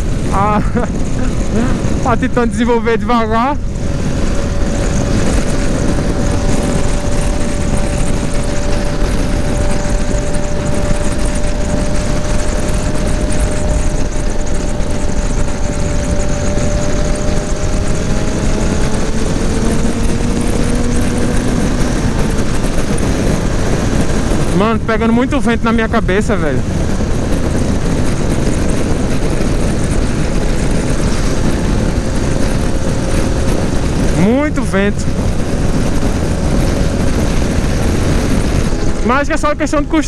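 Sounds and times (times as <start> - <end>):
motorcycle engine running: 0.0 - 40.0
wind rushing over microphone: 0.0 - 40.0.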